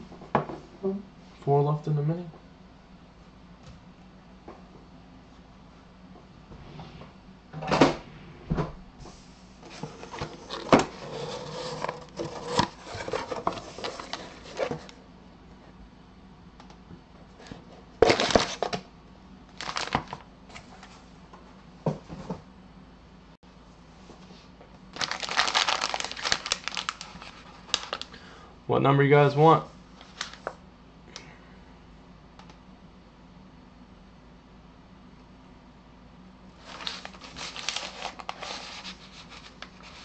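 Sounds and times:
foil packs rustling: 18.0s - 18.8s, 19.5s - 20.2s, 24.9s - 28.2s, 36.6s - 40.0s.

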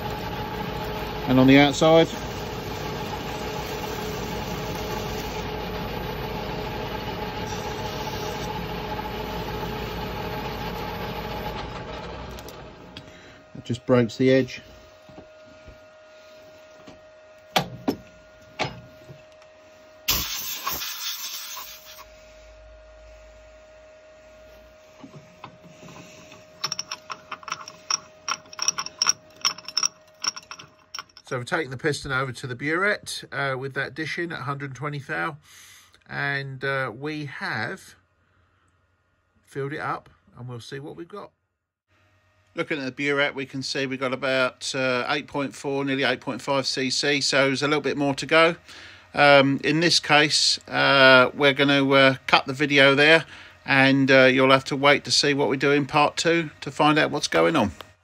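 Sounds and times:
metal lathe motor humming: 0.0s - 16.0s, 24.5s - 31.3s
faint steady hum: 12.3s - 20.7s, 21.8s - 41.2s, 42.0s - 58.0s
light metal clicks and rattles: 26.6s - 31.3s.

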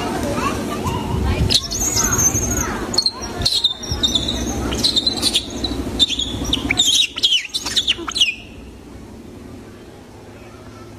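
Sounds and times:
low background murmur: 0.0s - 10.9s
high-pitched chirps and squeaks: 1.5s - 8.5s.

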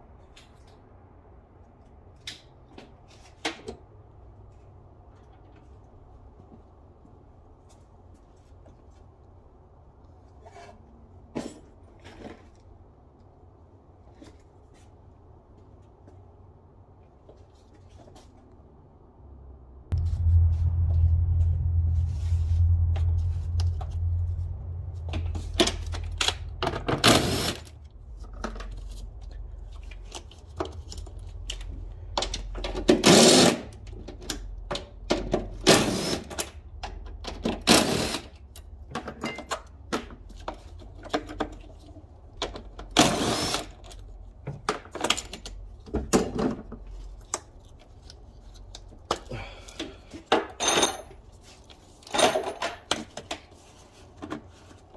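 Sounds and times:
steady low hum: 19.8s - 42.8s
clank of tools and parts: 38.6s - 40.2s, 50.3s - 51.2s, 52.1s - 53.1s.

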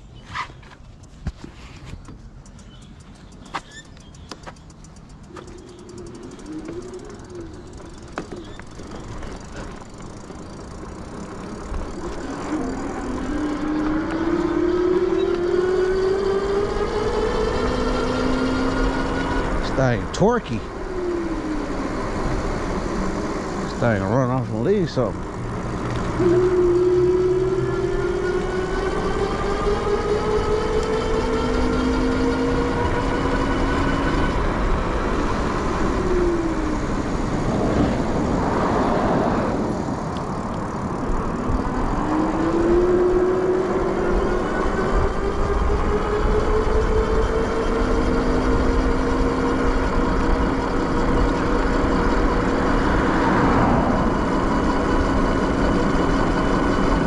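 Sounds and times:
tyre noise: 0.0s - 16.1s
wind and road noise: 0.0s - 57.0s
electric motor whining: 3.8s - 57.0s.

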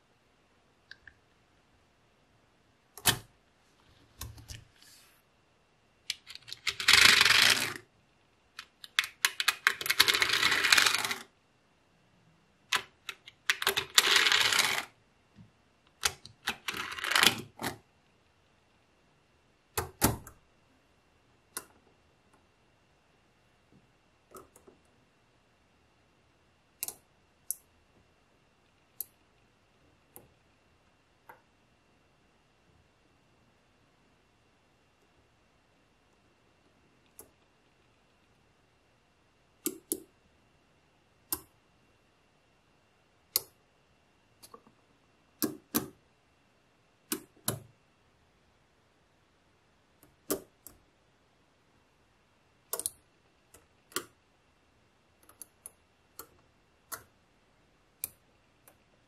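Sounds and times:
magnet balls clicking and rattling: 6.1s - 7.8s, 12.7s - 14.9s.

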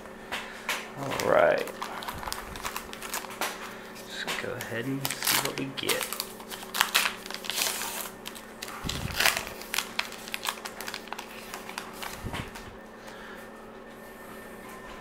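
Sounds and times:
wrapper crinkling and tearing: 1.0s - 3.6s, 4.4s - 12.6s.

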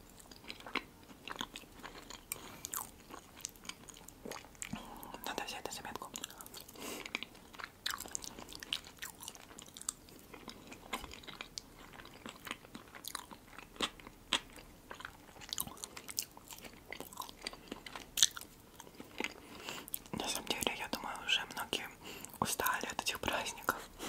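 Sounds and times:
soft chewing: 0.0s - 24.0s.

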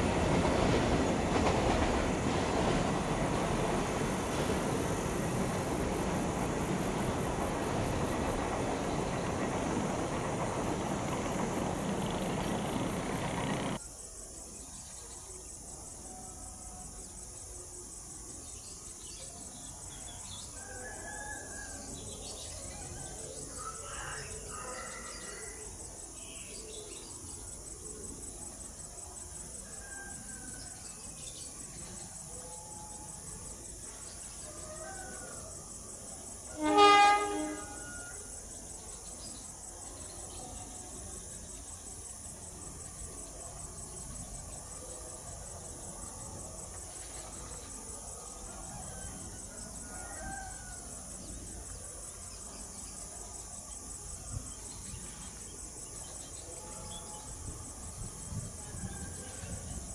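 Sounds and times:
faint insect chirps: 0.0s - 59.9s
locomotive horn blast: 36.5s - 38.0s.

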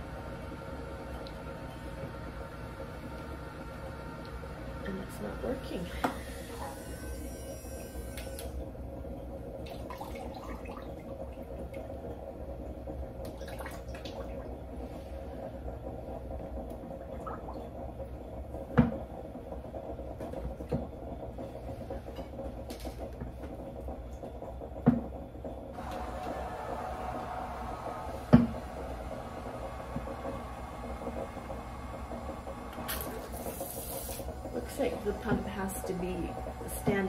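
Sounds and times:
low hum: 25.7s - 37.0s
knocks on pump: 28.3s - 28.5s.

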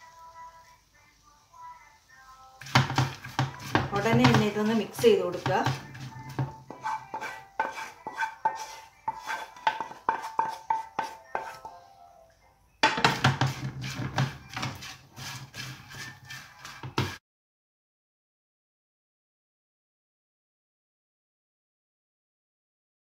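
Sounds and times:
wooden spatula scraping a pan: 2.6s - 11.8s, 12.9s - 17.2s.

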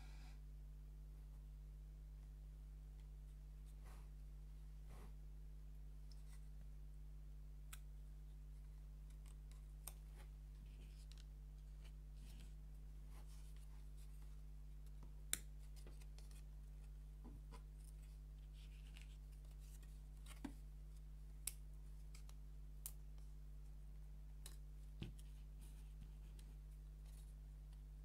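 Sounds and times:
soft rustling: 3.0s - 4.2s.

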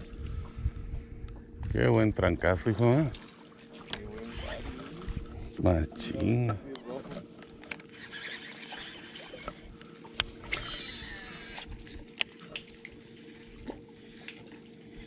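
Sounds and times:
low steady hum: 0.0s - 15.0s
water lapping at boat hull: 0.0s - 15.0s.

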